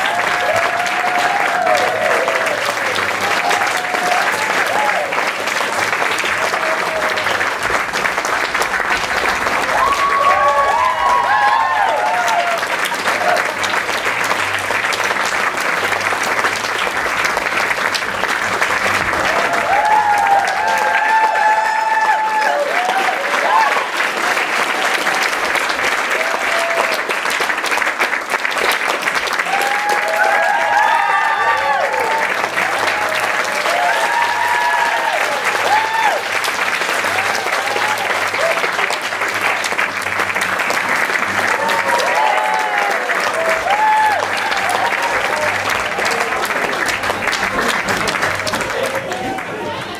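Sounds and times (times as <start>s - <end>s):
high voices whooping and cheering: 0.0s - 5.2s, 9.5s - 13.5s, 19.3s - 23.9s, 29.4s - 36.3s, 41.5s - 46.2s
audience applauding: 0.0s - 49.9s.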